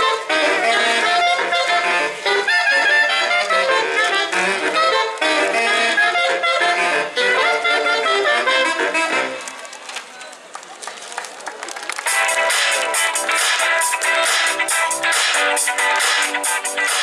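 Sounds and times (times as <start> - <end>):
instrumental dance music over loudspeakers: 0.0 - 7.1, 12.0 - 17.0.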